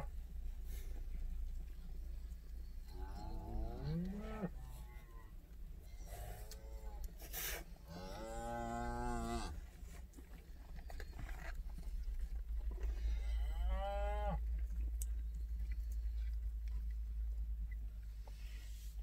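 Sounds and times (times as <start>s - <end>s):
vehicle rumble from inside cab: 0.0s - 8.3s, 9.3s - 19.0s
cattle mooing: 2.9s - 5.3s, 7.9s - 9.6s, 13.0s - 14.4s.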